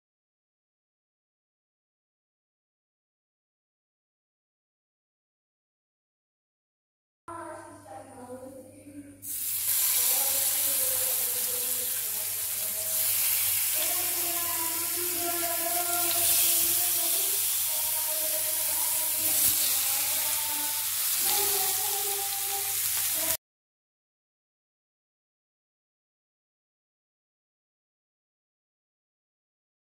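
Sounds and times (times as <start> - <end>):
fish sizzling in hot oil: 9.2 - 23.4.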